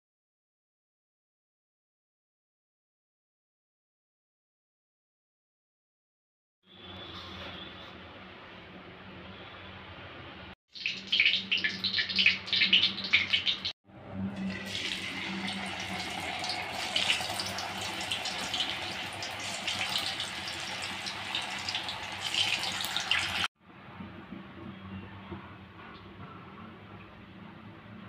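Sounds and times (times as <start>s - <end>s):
fries sizzling in hot oil: 10.8s - 13.7s, 14.4s - 23.5s.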